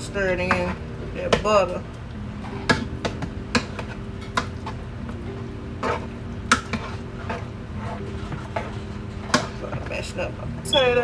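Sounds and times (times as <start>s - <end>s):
spoon clinking and scraping pot: 5.8s - 9.9s.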